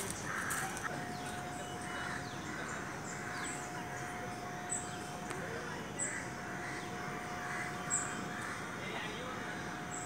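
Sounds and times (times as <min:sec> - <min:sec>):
crows cawing: 0:00.0 - 0:00.9, 0:01.8 - 0:04.5, 0:06.0 - 0:09.9
small birds chirping: 0:00.0 - 0:10.0.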